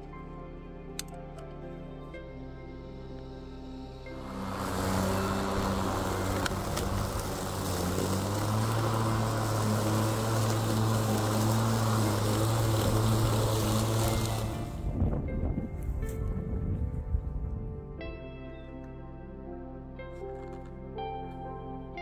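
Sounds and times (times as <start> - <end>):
lawn mower motor hum: 2.4 - 16.4.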